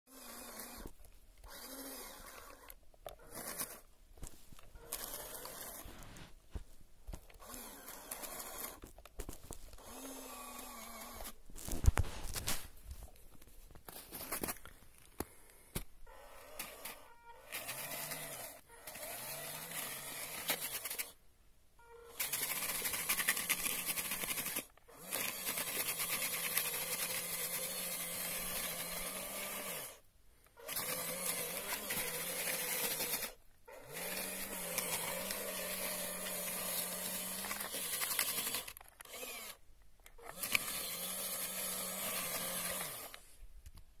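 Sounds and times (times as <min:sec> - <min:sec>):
small electric motor running: 0:00.1 - 0:03.8, 0:04.8 - 0:05.9, 0:07.4 - 0:08.8, 0:09.8 - 0:11.4, 0:16.1 - 0:21.2, 0:22.0 - 0:30.0, 0:30.6 - 0:39.6, 0:40.2 - 0:43.2.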